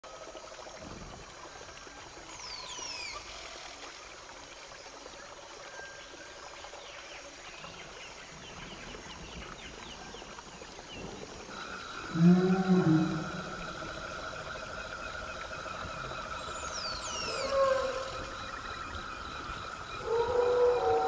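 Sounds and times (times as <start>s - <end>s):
running water: 0.0s - 21.0s
bird calls: 11.6s - 21.0s.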